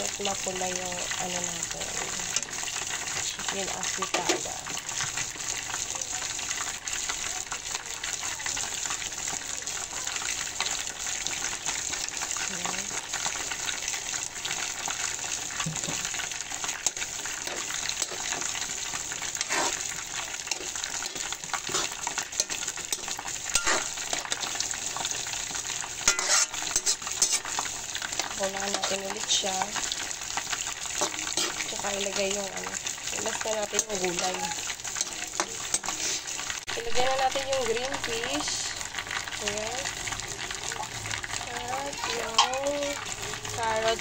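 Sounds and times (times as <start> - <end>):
chicken sizzling in sauce: 0.0 - 44.0
metal spoon stirring: 15.6 - 36.5, 41.7 - 44.0
spoon clinking against pan: 23.5 - 24.0, 26.1 - 27.4.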